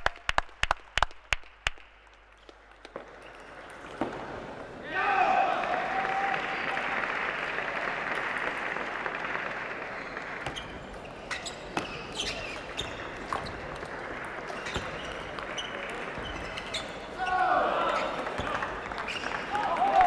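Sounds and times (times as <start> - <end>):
crowd applause: 5.1 - 10.5, 17.5 - 20.0.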